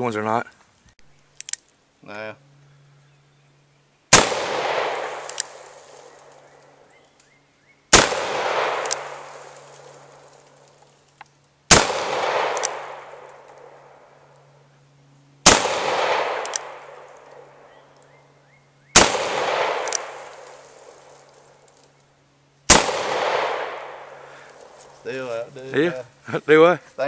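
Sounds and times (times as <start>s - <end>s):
revolver shots with echo: 7.9s - 9.7s, 19.0s - 20.9s, 22.7s - 24.2s.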